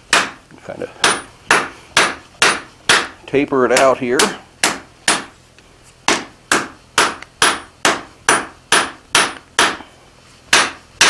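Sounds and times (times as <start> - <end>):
hammer striking steel on anvil: 1.0 - 5.3, 6.1 - 9.9, 10.5 - 10.8.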